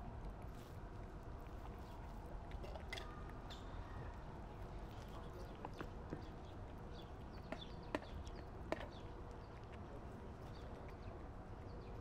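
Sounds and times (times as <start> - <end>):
kitten chewing and licking: 4.1 - 11.7.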